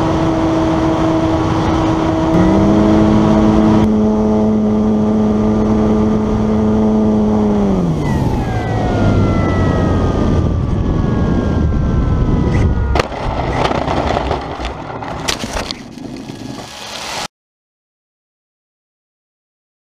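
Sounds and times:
paraglider engine and propeller: 0:00.0 - 0:12.9
wind noise: 0:08.0 - 0:17.3
knocks and rattling: 0:12.9 - 0:16.7.

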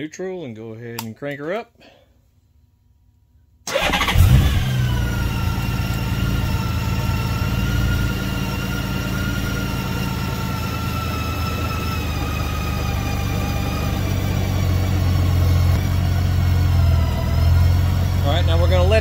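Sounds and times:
motorcycle engine starting and idling: 0:03.7 - 0:19.0.

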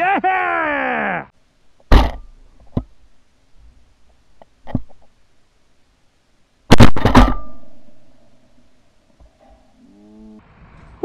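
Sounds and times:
shotgun shots: 0:06.7 - 0:07.5.

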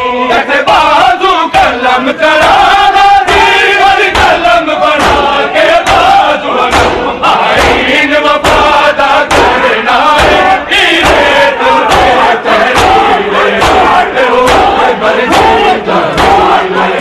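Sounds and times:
men chanting: 0:00.0 - 0:17.0
hands striking chests: 0:04.1 - 0:16.6.

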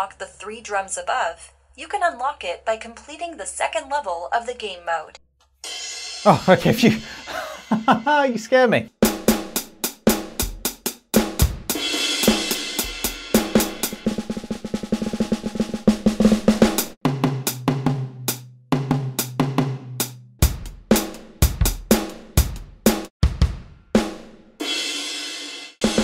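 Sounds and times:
electronic drum roll: 0:11.2 - 0:18.1, 0:25.8 - 0:26.0.

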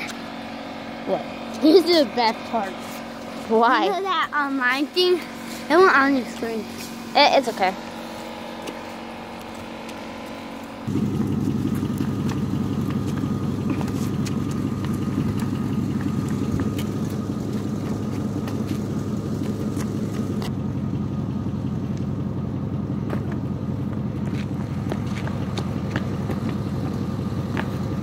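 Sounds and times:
constant hum: 0:00.0 - 0:28.0
low rumble: 0:07.8 - 0:28.0.

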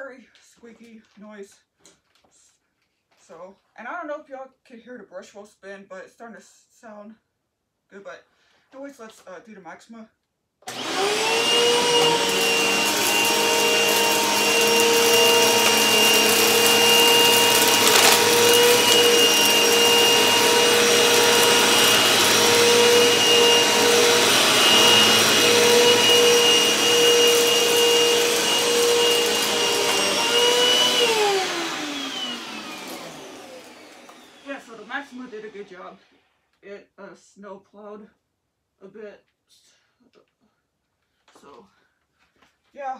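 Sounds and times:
vacuum cleaner whining: 0:10.6 - 0:36.4.

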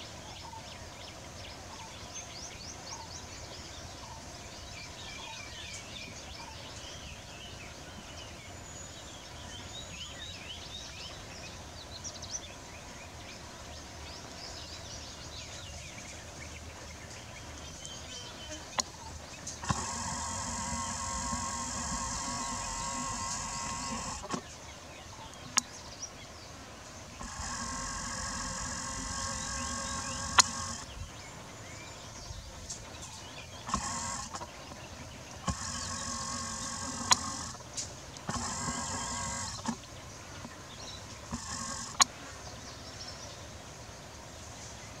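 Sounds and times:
small motor whining: 0:18.3 - 0:24.5, 0:27.2 - 0:31.0, 0:33.5 - 0:39.9, 0:41.2 - 0:42.1.

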